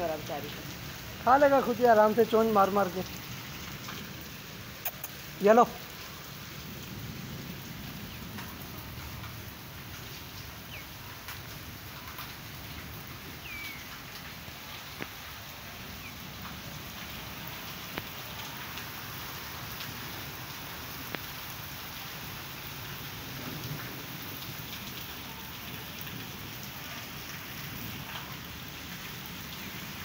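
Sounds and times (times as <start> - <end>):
steady rain on pavement: 0.0 - 30.0
sharp drip ticks: 3.1 - 6.2, 14.9 - 15.3.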